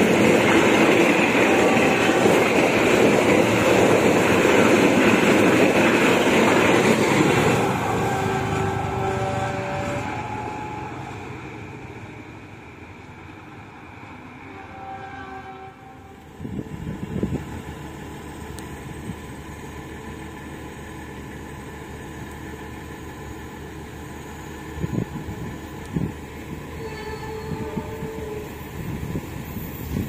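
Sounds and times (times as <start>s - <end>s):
train rumble approaching: 0.0s - 30.0s.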